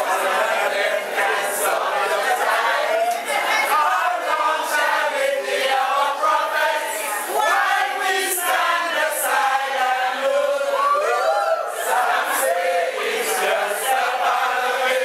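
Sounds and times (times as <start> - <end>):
crowd singing: 0.0 - 15.0.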